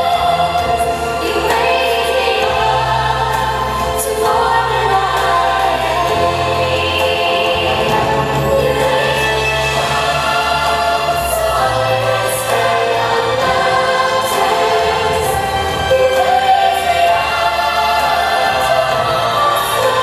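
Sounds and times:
background music: 0.0s - 20.0s
choir singing long held notes: 0.0s - 20.0s.

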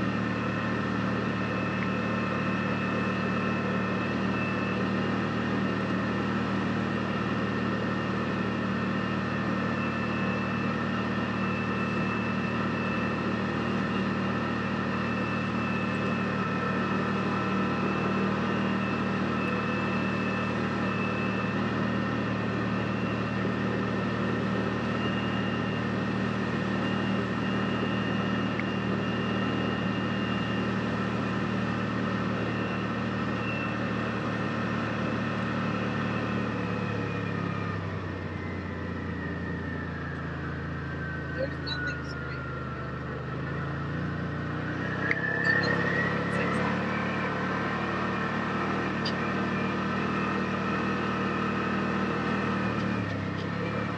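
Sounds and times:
utility vehicle engine running: 0.0s - 53.9s.

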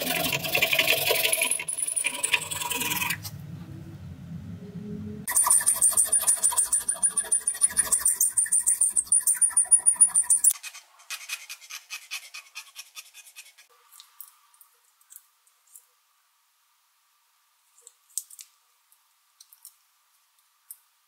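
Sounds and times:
metal file rasping on steel: 5.3s - 13.7s.

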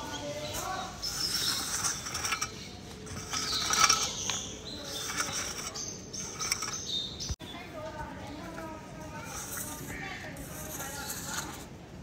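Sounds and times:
wooden board scraping cement mix: 9.1s - 11.7s.

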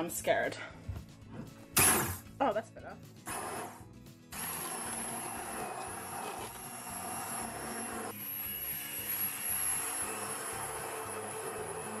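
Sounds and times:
hand blender churning pulp: 3.3s - 12.0s.

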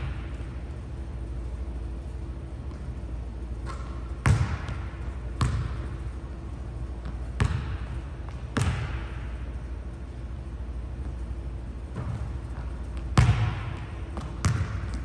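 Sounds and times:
basketball bouncing on wooden floor: 3.6s - 6.1s, 7.0s - 9.4s, 11.9s - 15.0s.

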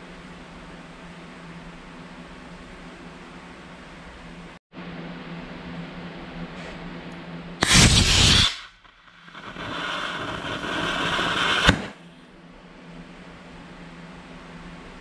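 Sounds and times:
rocket motor whoosh: 7.6s - 12.0s
sharp pop: 7.6s - 12.0s.

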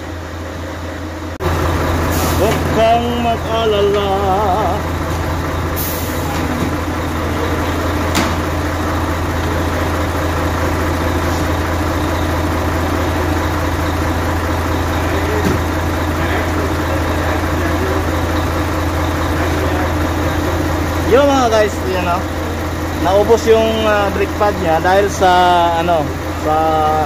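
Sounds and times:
diesel truck engine idling: 0.0s - 27.0s.

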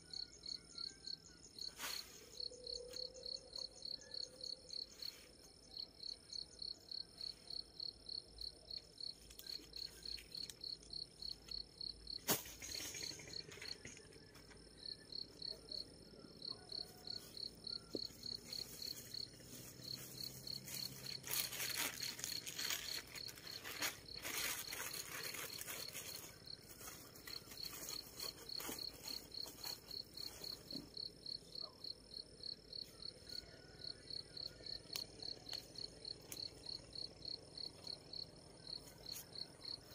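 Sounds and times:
insect chirping: 0.0s - 39.9s
rustling of handled objects: 16.9s - 30.9s.

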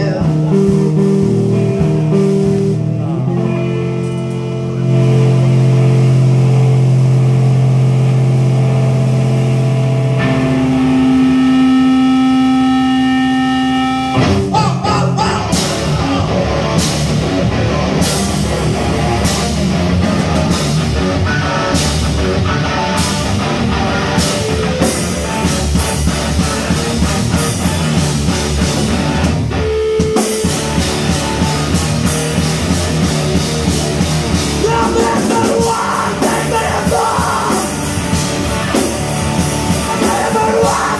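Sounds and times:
drum kit with cymbal hits: 0.0s - 11.4s, 14.1s - 40.9s
electric guitar chords: 0.0s - 40.9s.

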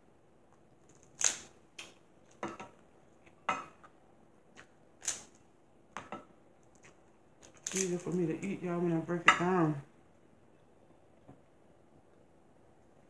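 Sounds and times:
crab shell cracking by hand: 0.8s - 2.4s, 4.5s - 5.4s, 6.6s - 8.2s.

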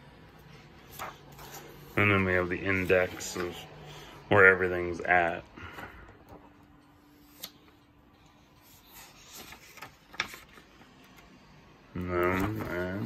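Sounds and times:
book pages rustling: 0.3s - 3.8s, 6.1s - 11.3s, 12.0s - 13.0s.

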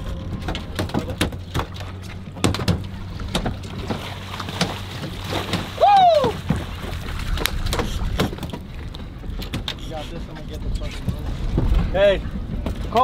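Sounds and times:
boat engine idling: 0.0s - 13.0s
water splashing and knocking: 0.4s - 9.8s
person whooping: 5.8s - 6.4s.

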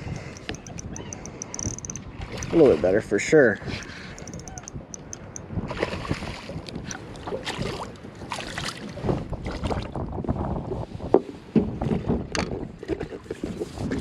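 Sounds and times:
knocks and rattles in boat: 11.1s - 14.0s.

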